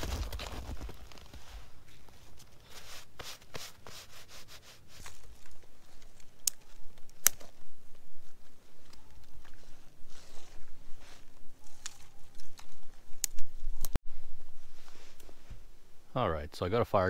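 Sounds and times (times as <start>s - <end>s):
sticks rustling and scraping: 0.0s - 15.7s
sharp cracks: 6.4s - 7.6s.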